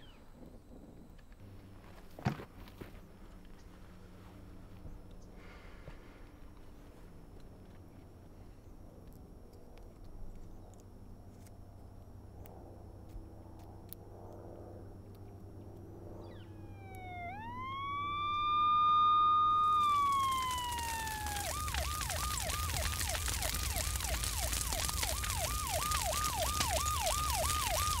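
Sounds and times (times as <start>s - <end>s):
police siren wailing and yelping: 16.2s - 28.0s
crackling hiss: 16.3s - 28.0s.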